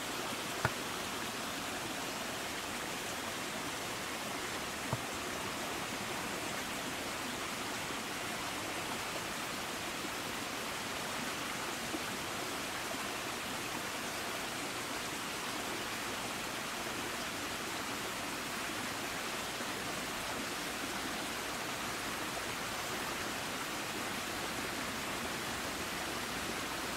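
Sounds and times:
steady rushing hiss: 0.0 - 7.2.

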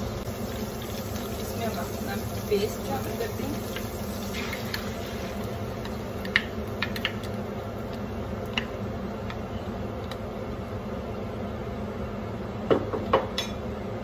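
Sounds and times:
paste frying in hot oil: 0.0 - 9.3
background hum: 0.0 - 14.0.

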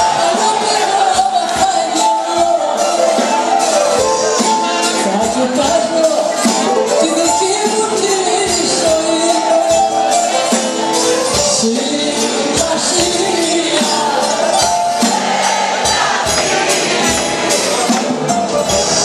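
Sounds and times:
guitar: 0.0 - 19.0
jingling percussion: 0.0 - 19.0.

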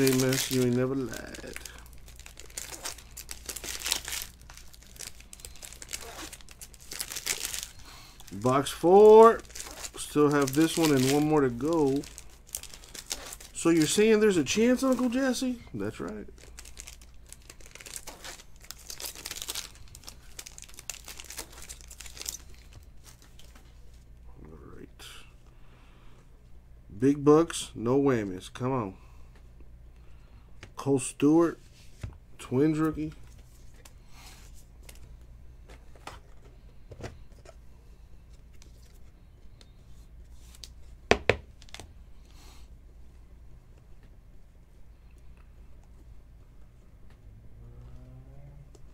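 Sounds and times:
foil wrapper crinkling and tearing: 0.0 - 23.5.

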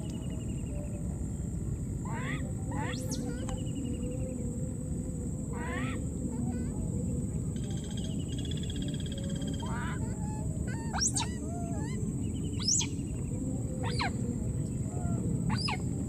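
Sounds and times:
high-pitched whine: 0.0 - 6.3
baby monkey squealing: 9.6 - 11.9, 15.5 - 15.8.

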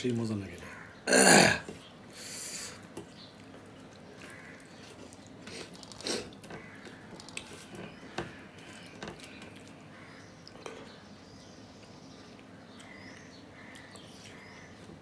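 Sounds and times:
fingers squishing rice and curry: 2.8 - 11.1, 11.7 - 15.0
soft wet clicks and smacks: 2.9 - 7.6, 11.8 - 14.7.

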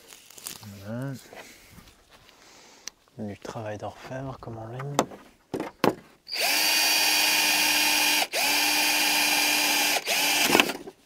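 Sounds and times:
cordless drill boring through fibreglass: 6.3 - 10.8.

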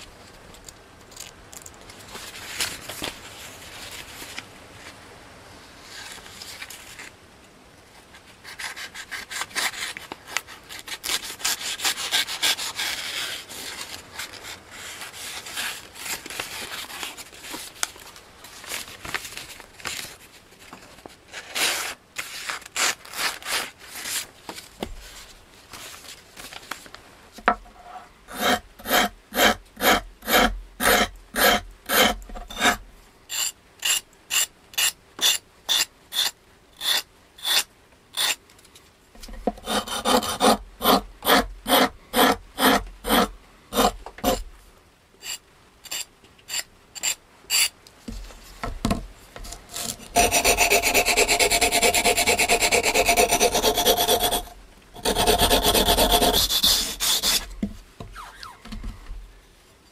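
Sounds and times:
paper rustling: 0.6 - 5.0, 9.3 - 27.0
sandpaper rubbing knife blade: 28.3 - 38.4, 45.2 - 47.7, 49.7 - 57.5.

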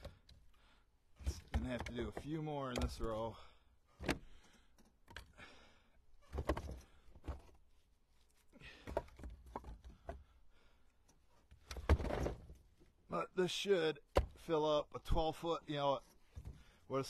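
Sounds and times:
firewood pieces knocking together: 1.2 - 3.2, 8.7 - 10.3.

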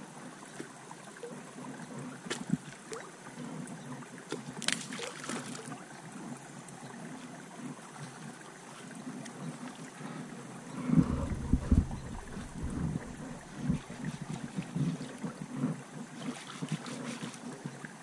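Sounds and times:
creek background noise: 0.0 - 18.0
splash: 4.3 - 5.8, 16.2 - 17.6.

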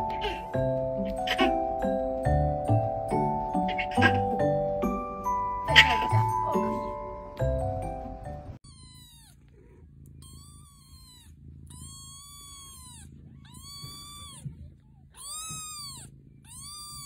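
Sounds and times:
kitten mewing: 0.0 - 1.7, 3.6 - 4.4, 5.7 - 7.0, 8.6 - 17.0.

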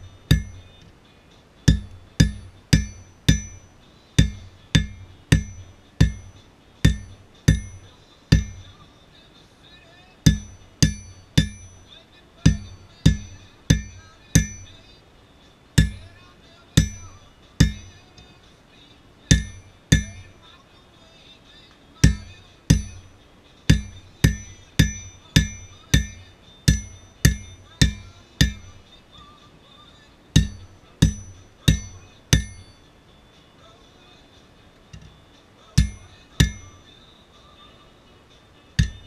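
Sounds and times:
hammer striking anvil: 0.0 - 0.8, 1.7 - 8.8, 10.3 - 14.9, 15.8 - 18.4, 19.3 - 20.4, 22.0 - 29.0, 30.4 - 32.8, 35.8 - 36.9, 38.8 - 39.0.

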